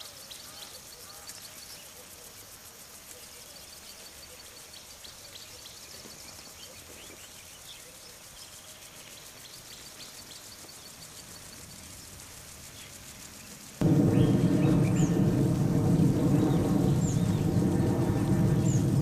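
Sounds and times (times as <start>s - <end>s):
steady background hiss: 0.0s - 19.0s.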